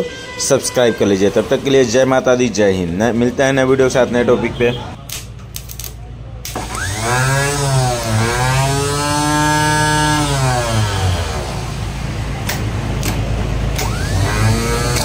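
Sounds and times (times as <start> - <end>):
starter motor whining: 6.5 - 12.0, 13.7 - 15.0
sharp clicks: 12.4 - 14.2.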